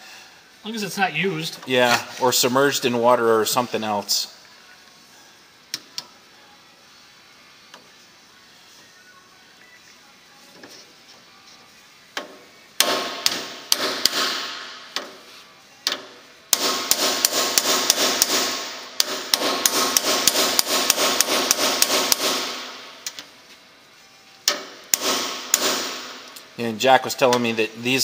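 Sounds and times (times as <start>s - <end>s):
hammer striking metal: 12.8s - 15.1s, 16.5s - 22.9s, 24.5s - 26.3s.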